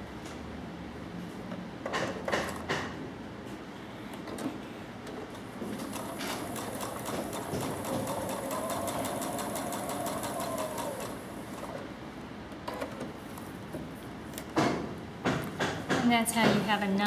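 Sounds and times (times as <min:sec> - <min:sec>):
sewing machine stitching: 0:05.7 - 0:11.8
sewing machine motor whine: 0:05.8 - 0:11.8.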